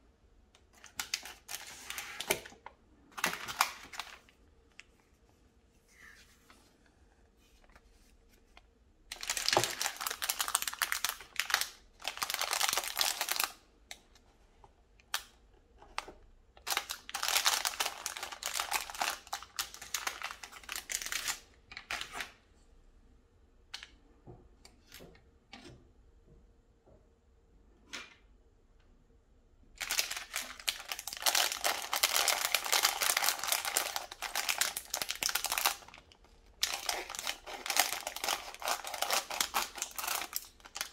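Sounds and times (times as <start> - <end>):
plastic bags crinkling: 0.8 - 4.3, 9.1 - 13.6, 16.6 - 22.0, 29.8 - 40.9.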